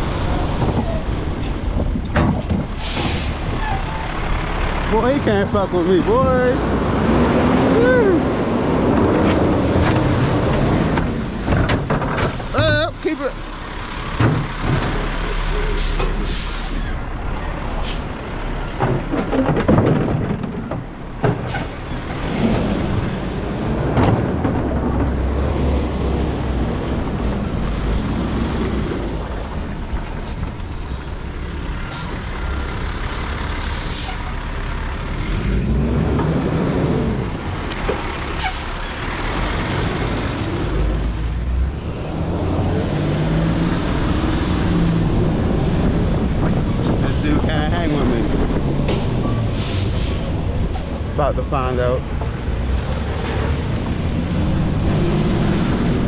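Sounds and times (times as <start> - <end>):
air brakes hissing: 2.6 - 3.8, 12.2 - 12.6, 15.7 - 17.1, 17.8 - 18.2, 21.5 - 21.9, 33.6 - 34.4, 38.4 - 38.8, 49.0 - 51.1.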